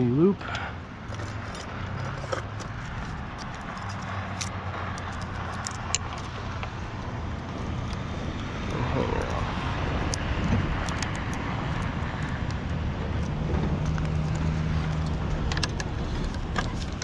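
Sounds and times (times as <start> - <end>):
distant engine rumble: 0.0 - 17.0
small clicks and rattles: 1.1 - 6.8, 10.1 - 17.0.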